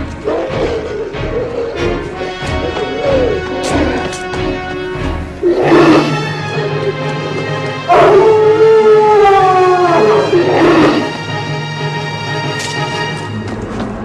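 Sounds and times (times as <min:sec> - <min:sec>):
dark background music: 0:00.0 - 0:14.0
werewolf howling: 0:00.2 - 0:04.0, 0:05.4 - 0:11.2.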